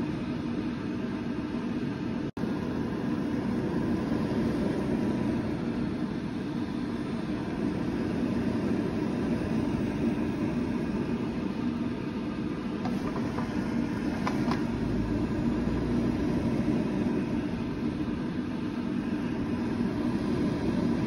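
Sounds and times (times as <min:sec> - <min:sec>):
steady mechanical hum: 0:00.0 - 0:21.0.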